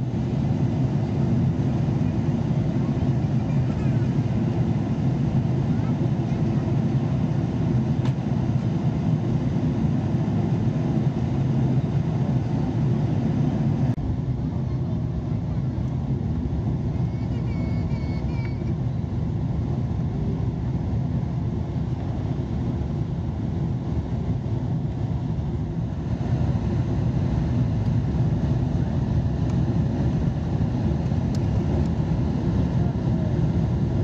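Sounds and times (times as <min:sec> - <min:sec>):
jet engine roar: 0:00.0 - 0:34.0.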